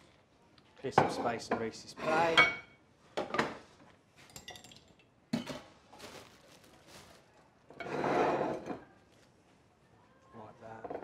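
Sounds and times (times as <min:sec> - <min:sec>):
plates knocking and clinking: 0:00.9 - 0:03.7.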